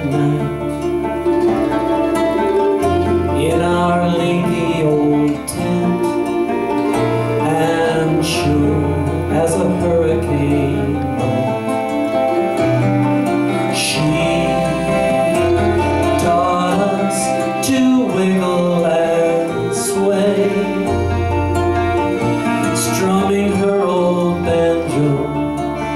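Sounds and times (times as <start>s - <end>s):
bass guitar: 0.0s - 25.9s
mandolin: 0.0s - 25.9s
nylon-string guitar: 0.0s - 25.9s.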